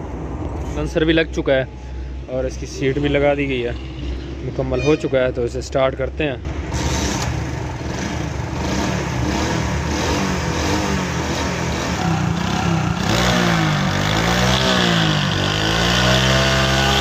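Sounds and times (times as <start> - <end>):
motorcycle engine revving: 6.5 - 17.0.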